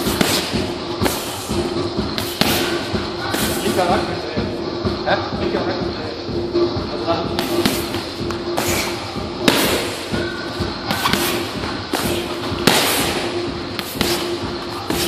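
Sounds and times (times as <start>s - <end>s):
strikes thudding on pads: 2.2s - 3.6s, 7.4s - 10.3s, 10.9s - 15.0s.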